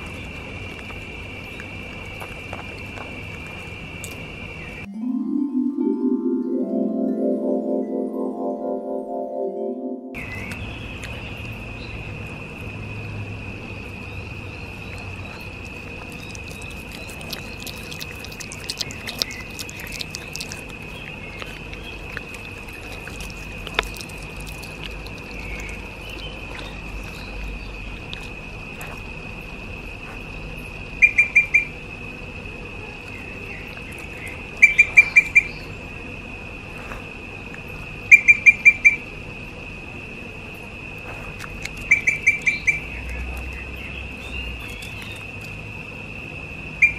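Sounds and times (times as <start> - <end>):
insect drone: 0.0 - 46.9
rapid chirps: 14.9 - 28.4.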